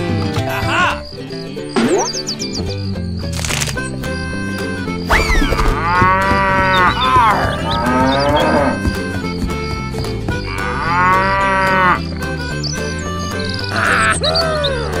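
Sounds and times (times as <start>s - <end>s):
music: 0.0s - 15.0s
cattle mooing: 5.5s - 9.3s, 10.4s - 12.0s, 13.6s - 14.2s.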